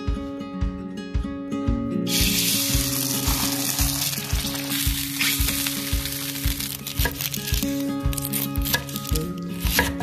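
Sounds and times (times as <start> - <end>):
background music with beat: 0.0 - 10.0
food sizzling in oil: 2.1 - 8.8.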